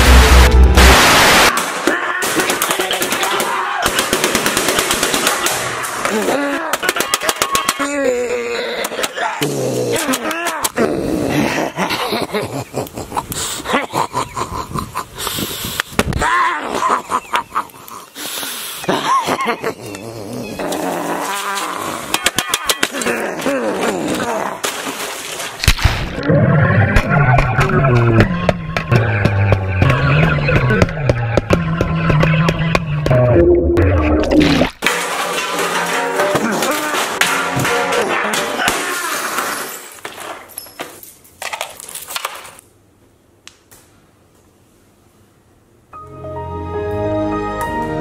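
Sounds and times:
loud low vocal sounds: 0:26.2 - 0:34.7
crackling and clattering: 0:34.6 - 0:40.5
broken glass and metal clinking: 0:34.8 - 0:41.9.

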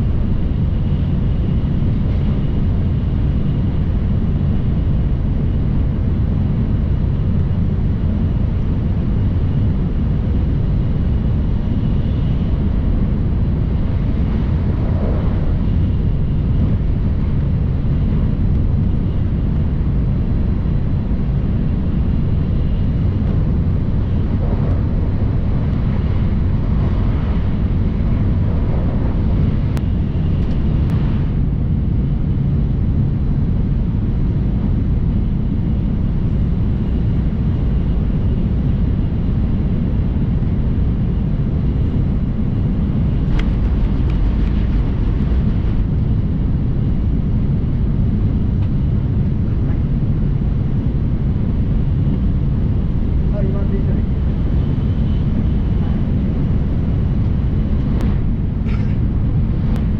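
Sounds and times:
train running at speed: 0:00.0 - 0:31.6, 0:52.1 - 0:59.9.

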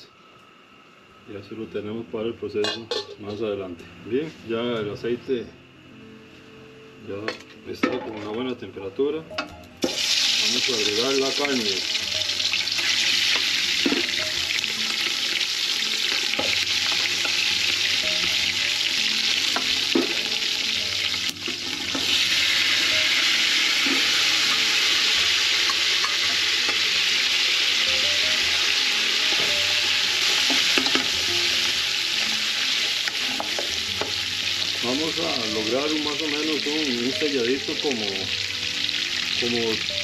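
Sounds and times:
meat sizzling in hot oil: 0:09.8 - 0:40.0.

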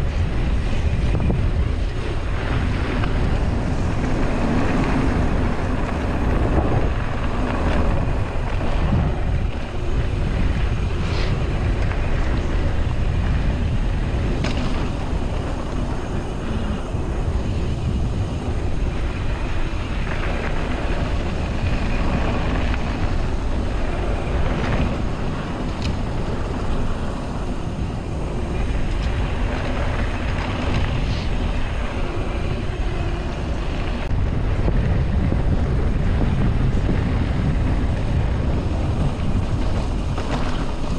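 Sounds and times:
bike rattling: 0:00.0 - 0:40.9
wind buffeting microphone: 0:00.0 - 0:40.9.

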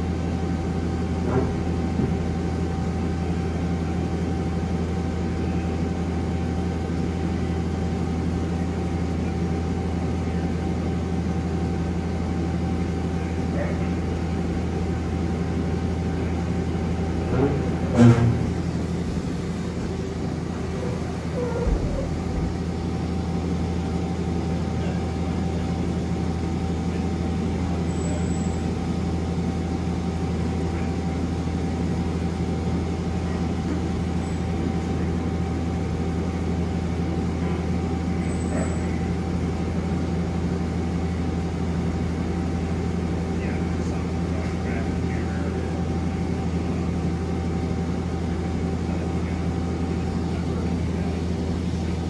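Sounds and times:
lathe machine hum: 0:00.0 - 0:38.2
sharp clunk: 0:17.4 - 0:18.6.

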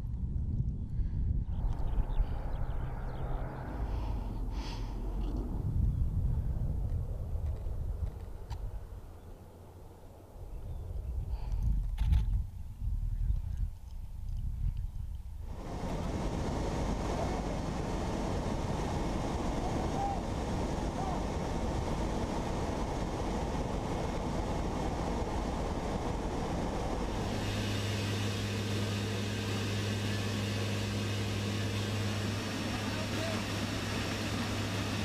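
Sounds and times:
wind rushing: 0:00.0 - 0:08.0, 0:15.4 - 0:28.6
aircraft engine drone: 0:00.2 - 0:12.1, 0:15.3 - 0:35.0.

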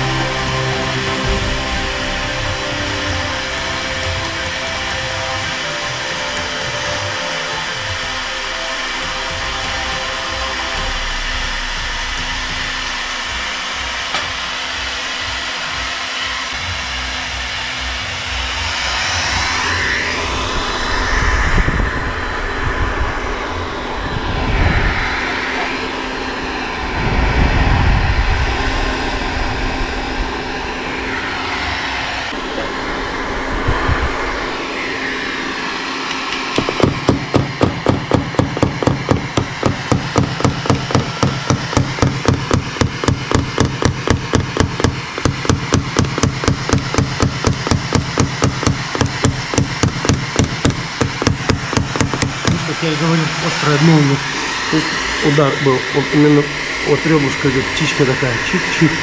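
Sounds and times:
heat gun blowing: 0:00.0 - 0:17.8, 0:18.4 - 0:59.0
hammer tapping on metal: 0:36.1 - 0:52.6.

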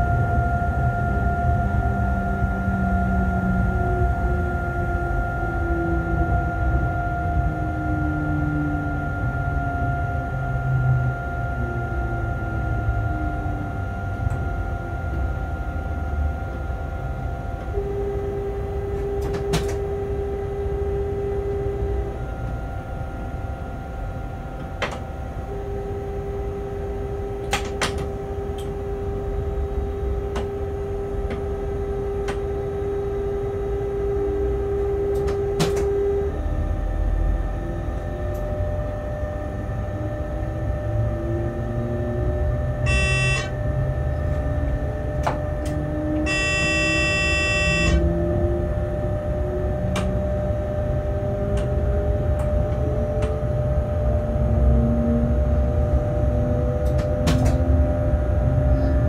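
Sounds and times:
rising whines: 0:00.0 - 0:27.5, 0:28.2 - 0:59.0
electronic warning tone: 0:00.0 - 0:59.0
steady hum: 0:00.0 - 0:59.0
locomotive low rumble: 0:48.0 - 0:59.0.

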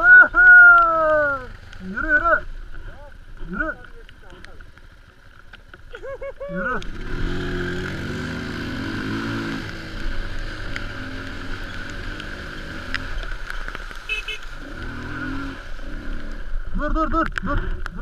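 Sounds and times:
mud spattering ticks: 0:03.4 - 0:07.1, 0:09.6 - 0:15.3
quad bike engine running: 0:03.4 - 0:13.4, 0:14.0 - 0:17.9.

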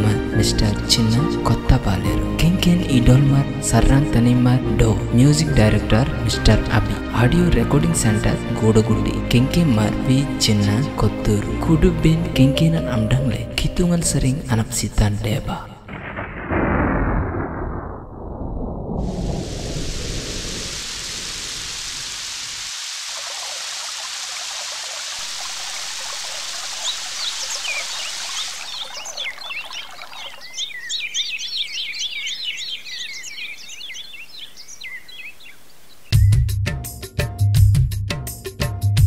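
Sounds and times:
rain hiss: 0:18.9 - 0:36.1
birds chirping: 0:23.2 - 0:36.4
music with drums: 0:36.2 - 0:39.0.

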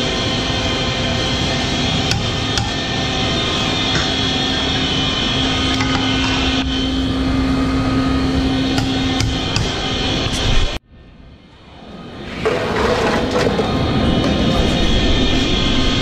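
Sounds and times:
hot oil deep-frying roar: 0:00.0 - 0:10.4
low hum: 0:00.0 - 0:16.0.

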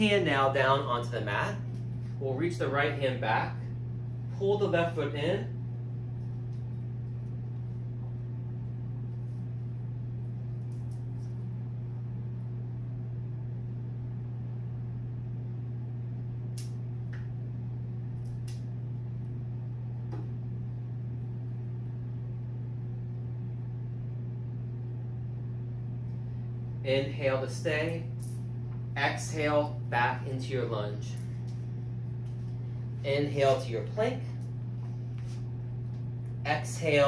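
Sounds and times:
low room hum: 0:00.0 - 0:37.0.

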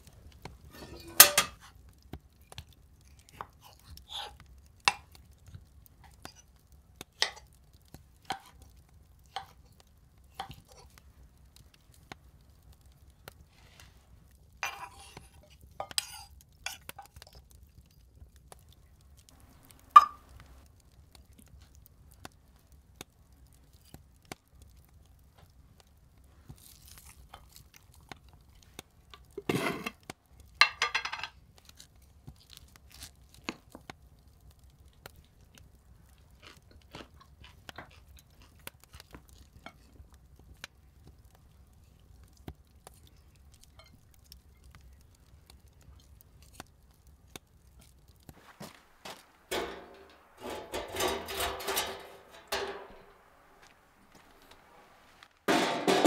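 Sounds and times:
person chewing food: 0:34.9 - 0:49.4
crunchy scraping bursts: 0:48.3 - 0:56.0.

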